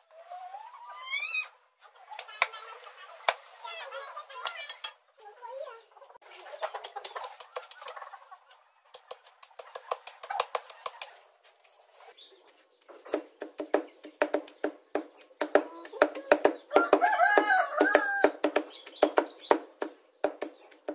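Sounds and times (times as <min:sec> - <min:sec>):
cleaver chopping on wooden block: 0:13.1 - 0:20.9.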